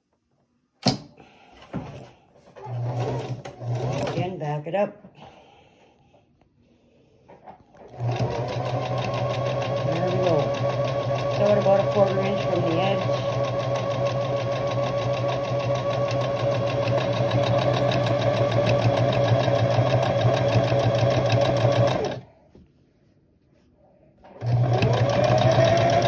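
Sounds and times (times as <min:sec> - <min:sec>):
electric sewing machine running: 0:02.6 - 0:04.3, 0:07.8 - 0:22.2, 0:24.4 - 0:26.0.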